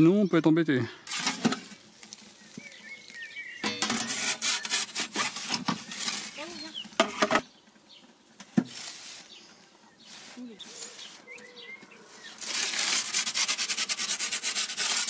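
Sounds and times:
metal pizza peel scraping stone: 1.1 - 2.1, 3.6 - 7.4, 12.2 - 15.0.

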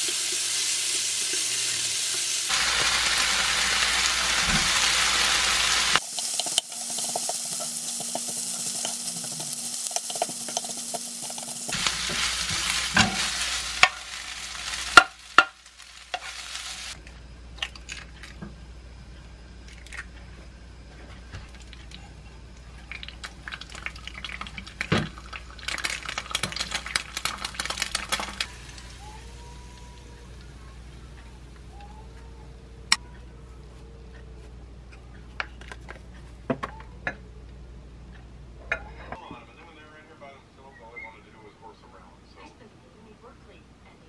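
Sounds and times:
egg frying: 0.0 - 17.0, 21.3 - 31.7
fried rice sizzling in a pan: 0.0 - 17.0
spatula scraping a pan: 6.1 - 13.5.

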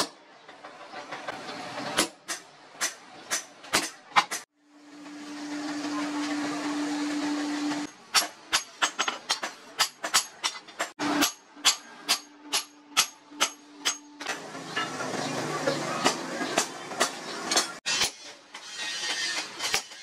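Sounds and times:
coal forge hissing: 4.6 - 8.0
hammer striking steel on anvil: 7.9 - 18.6.

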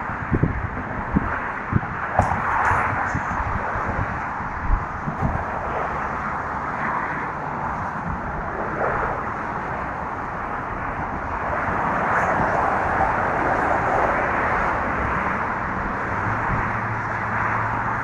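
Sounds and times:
traffic rushing past: 0.0 - 18.0
wind: 0.0 - 18.0.

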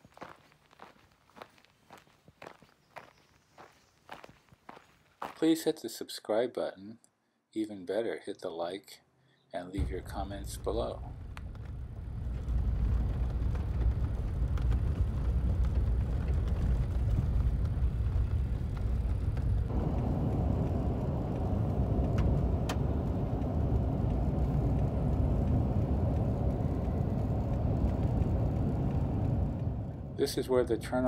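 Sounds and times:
car engine and tyre noise: 9.8 - 31.0.

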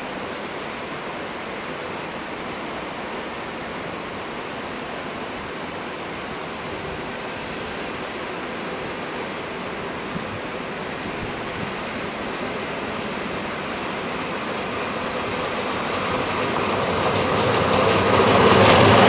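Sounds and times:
steady rushing noise: 9.4 - 19.0.

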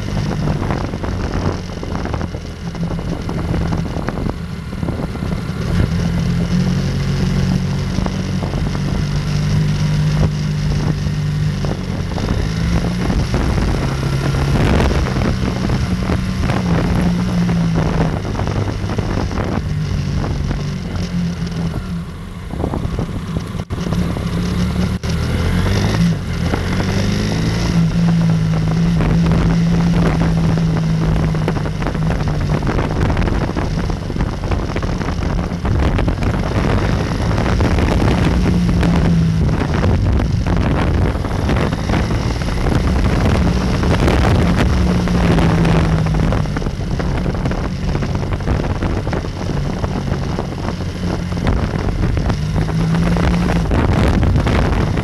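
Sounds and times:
motorcycle engine revving: 0.0 - 55.0
wind noise on microphone: 0.0 - 55.0.

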